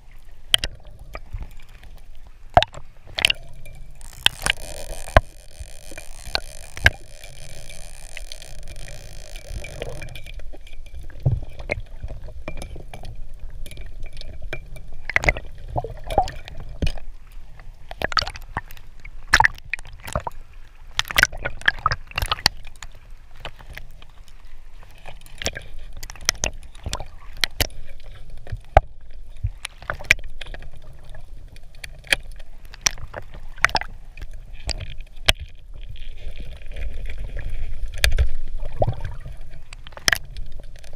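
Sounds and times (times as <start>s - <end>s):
low watery underwater rumble: 0.0s - 14.4s
speargun clicks and knocks: 4.0s - 10.4s.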